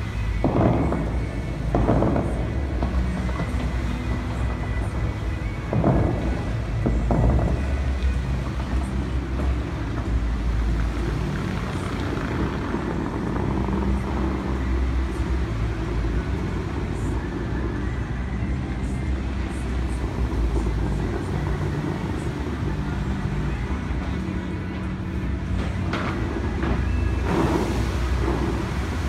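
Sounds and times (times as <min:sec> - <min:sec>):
faint low music notes: 0:00.0 - 0:29.0
fountain jets spraying: 0:00.0 - 0:29.0
low rumble: 0:00.0 - 0:29.0
sudden water blast: 0:27.2 - 0:29.0.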